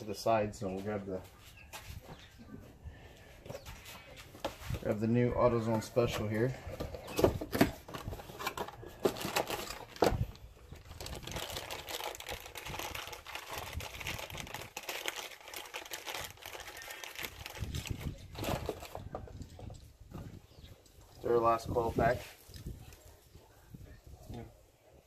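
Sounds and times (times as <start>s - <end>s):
packaging crinkling and rustling: 7.2s - 19.1s.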